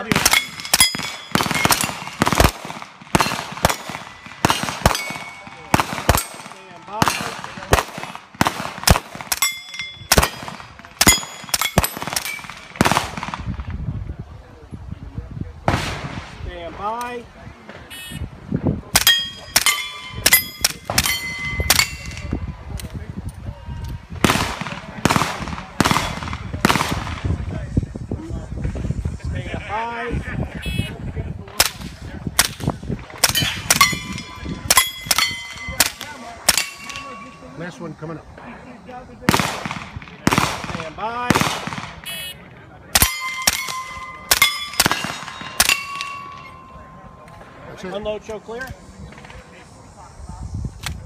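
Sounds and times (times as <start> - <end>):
suppressed rifle shots: 0.0 - 13.6, 39.3 - 42.2, 43.0 - 46.6
steel plate targets ringing: 0.2 - 2.3, 3.2 - 7.3, 9.3 - 12.6, 19.0 - 22.3, 33.3 - 37.7, 43.0 - 47.2.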